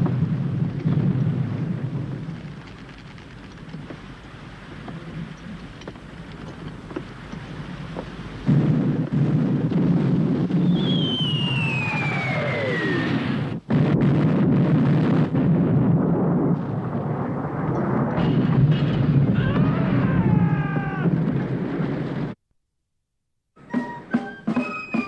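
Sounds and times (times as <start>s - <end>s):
cannon fire rumble: 0.0s - 5.4s, 7.8s - 22.4s
falling whistle: 10.5s - 13.4s, 23.6s - 25.0s
battle din: 19.2s - 21.5s.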